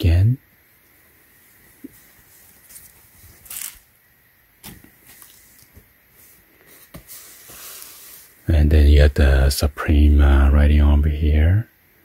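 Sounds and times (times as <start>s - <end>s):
fabric rustling on carpet: 1.3s - 3.9s.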